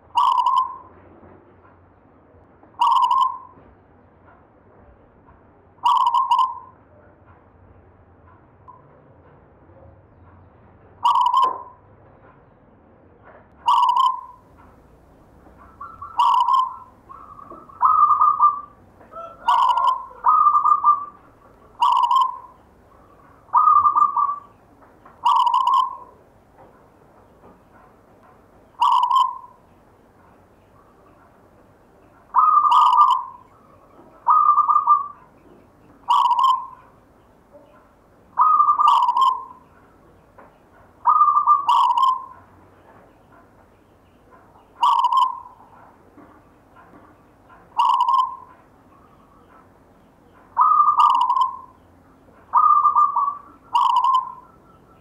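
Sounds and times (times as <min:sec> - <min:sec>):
dove cooing: 0:00.2 - 0:00.9, 0:02.8 - 0:03.5, 0:05.8 - 0:06.7, 0:11.0 - 0:11.7, 0:13.7 - 0:26.2, 0:28.7 - 0:29.7, 0:32.0 - 0:39.9, 0:41.0 - 0:42.5, 0:44.3 - 0:46.2, 0:46.8 - 0:49.7, 0:50.3 - 0:51.8, 0:52.4 - 0:55.0.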